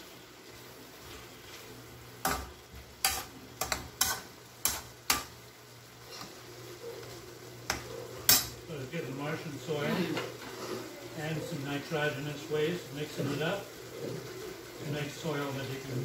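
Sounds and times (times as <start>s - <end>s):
pan sizzling: 0.0s - 16.0s
metal spoon scraping a pan: 2.2s - 5.3s, 6.0s - 6.4s, 7.6s - 8.6s.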